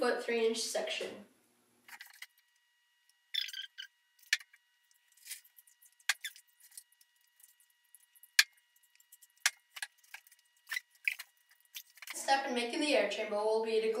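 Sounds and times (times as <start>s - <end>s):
clicks taps and scrapes handling pipe: 4.2s - 12.2s.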